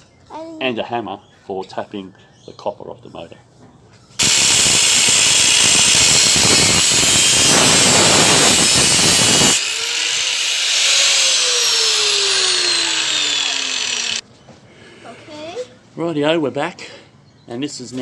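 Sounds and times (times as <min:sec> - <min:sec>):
angle grinder cutting metal: 0:04.2 - 0:14.2
grinder disc winding down: 0:04.2 - 0:14.2.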